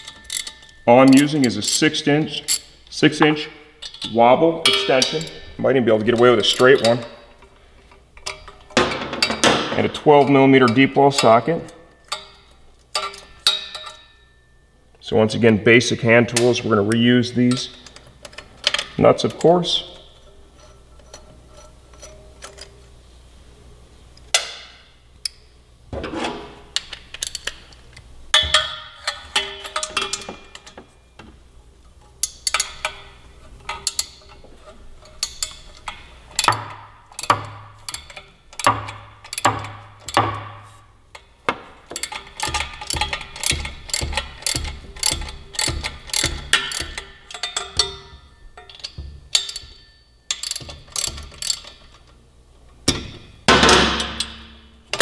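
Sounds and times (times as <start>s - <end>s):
metal clinks: 0.0s - 7.5s, 10.2s - 14.7s, 35.0s - 52.1s
ratchet wrench clicking: 33.6s - 34.4s, 35.0s - 40.3s, 41.9s - 52.1s.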